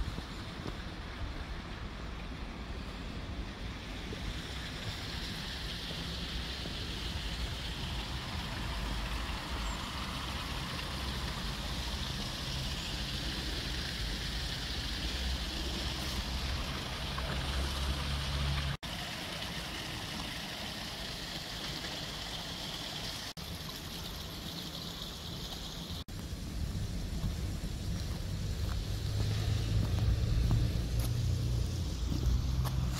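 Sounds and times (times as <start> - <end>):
water rushing: 0.0 - 32.9
wind rumbling on microphone: 26.1 - 32.9.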